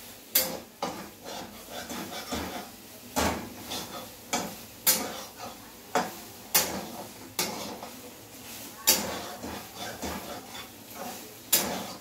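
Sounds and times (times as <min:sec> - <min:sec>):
metal spatula clinking on pan: 0:08.9 - 0:10.7.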